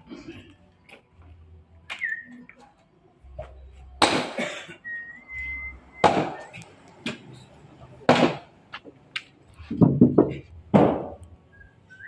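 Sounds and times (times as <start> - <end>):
short whistled tone: 4.8 - 6.6
wood blocks knocking on log: 9.7 - 11.2.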